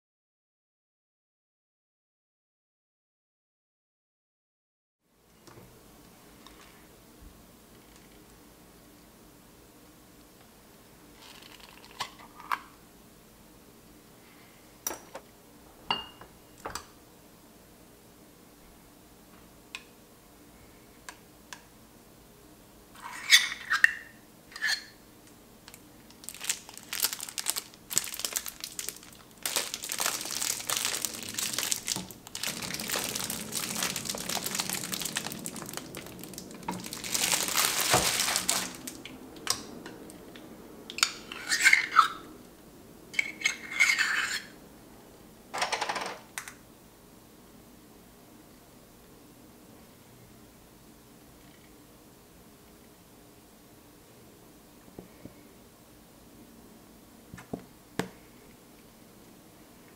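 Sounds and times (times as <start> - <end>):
squeeze bottle squeezing: 26.1 - 39.0
metal spoon clinking and scraping: 43.2 - 44.5.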